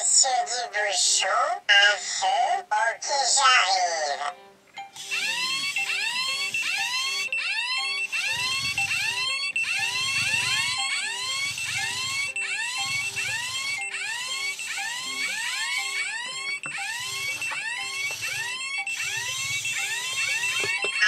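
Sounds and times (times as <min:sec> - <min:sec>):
steady high beep: 0:04.8 - 0:21.0
fire alarm siren whoops: 0:05.0 - 0:21.0.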